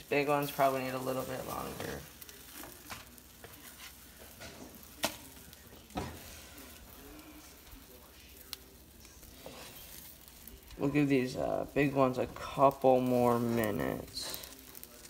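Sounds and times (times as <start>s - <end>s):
fish sizzling in oil: 0.0s - 15.0s
spatula scraping a pan: 1.2s - 5.2s, 9.2s - 11.2s.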